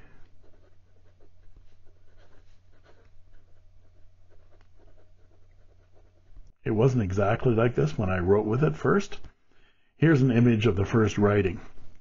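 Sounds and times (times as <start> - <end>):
pen nib scratching paper: 0.0 - 6.5.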